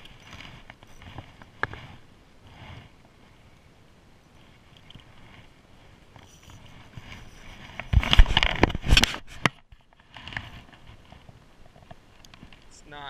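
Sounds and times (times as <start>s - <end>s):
clothing rubbing on microphone: 0.0s - 3.5s, 4.3s - 11.4s.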